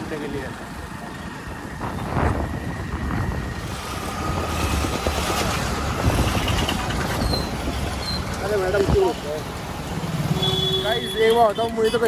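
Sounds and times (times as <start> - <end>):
road and traffic noise: 0.0 - 12.0
wind buffeting microphone: 1.4 - 9.1.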